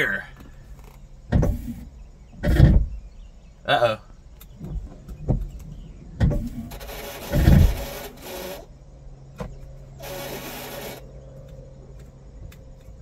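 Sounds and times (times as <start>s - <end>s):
low motor hum: 0.3s - 13.0s
knocks and heavy thump: 1.3s - 3.1s, 4.6s - 7.9s
wiper motor scraping: 4.6s - 8.7s, 10.0s - 11.1s.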